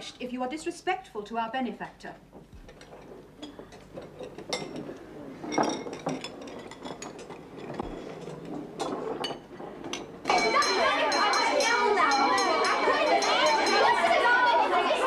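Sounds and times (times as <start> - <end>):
spoons clinking against metal bowls: 10.3 - 14.1.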